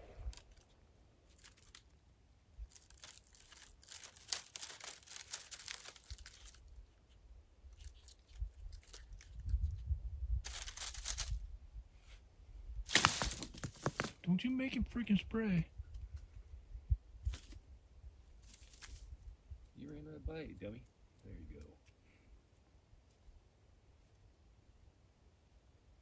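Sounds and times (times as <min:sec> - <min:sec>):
dry brush rustling and crackling: 0:00.0 - 0:02.0, 0:02.6 - 0:11.5, 0:12.9 - 0:14.2, 0:17.2 - 0:20.0.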